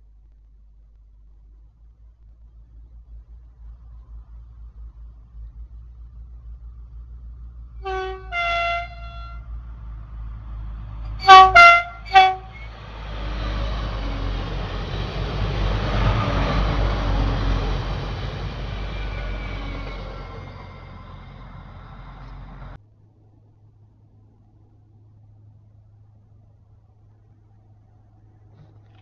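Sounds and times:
train wheels rumbling on rails: 0:00.0 - 0:22.8
train horn blasts: 0:07.8 - 0:09.6, 0:11.1 - 0:12.8.

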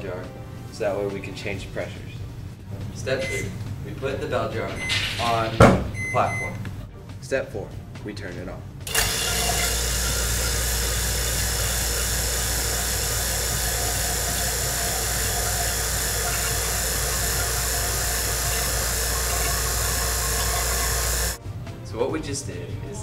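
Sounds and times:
vacuum pump humming and hissing: 0:08.8 - 0:21.4.

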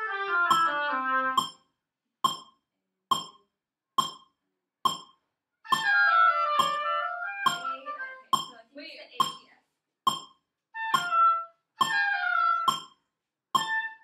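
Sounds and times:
metronome clicking: 0:00.5 - 0:00.8, 0:01.4 - 0:03.4, 0:04.0 - 0:04.3, 0:04.9 - 0:05.9, 0:06.6 - 0:08.6, 0:09.2 - 0:09.5, 0:10.1 - 0:11.2, 0:11.8 - 0:13.0, 0:13.6 - 0:14.0.

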